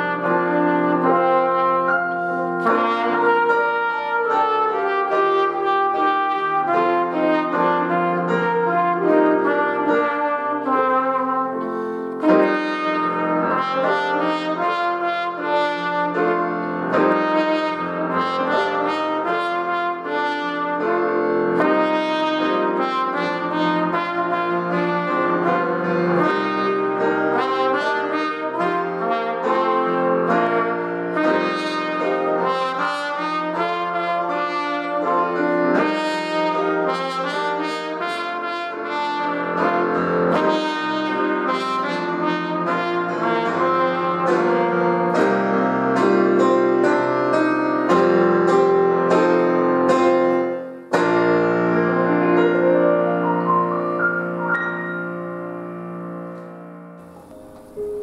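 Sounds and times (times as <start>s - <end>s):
electric keyboard accompaniment: 0.0s - 58.0s
trumpet playing slow melody: 0.0s - 58.0s.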